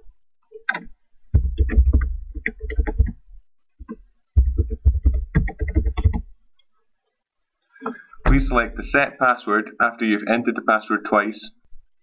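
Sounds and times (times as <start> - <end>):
keyboard typing: 0.5 - 3.2, 3.8 - 6.3.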